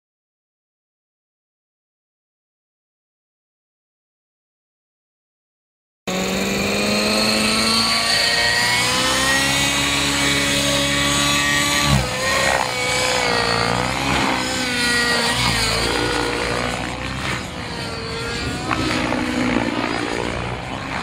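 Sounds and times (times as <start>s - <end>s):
model helicopter engine whine: 6.1s - 21.0s.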